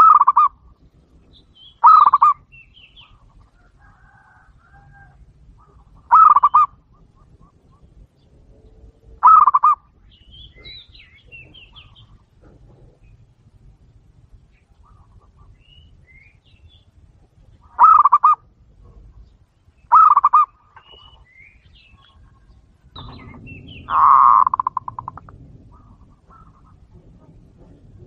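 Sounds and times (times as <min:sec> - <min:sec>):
dove cooing: 0:00.0 - 0:00.7, 0:01.8 - 0:09.9, 0:17.6 - 0:19.2, 0:19.9 - 0:21.2, 0:21.9 - 0:28.0
small birds chirping: 0:00.0 - 0:28.0.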